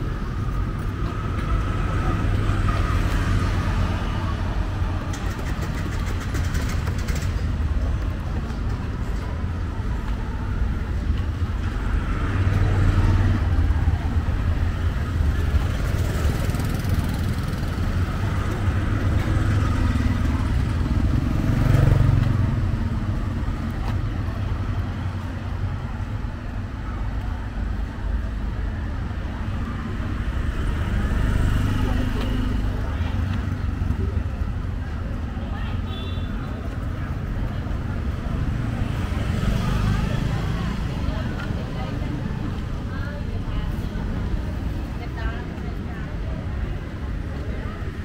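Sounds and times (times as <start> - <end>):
scooter and rickshaw engines: 0.0 - 48.0.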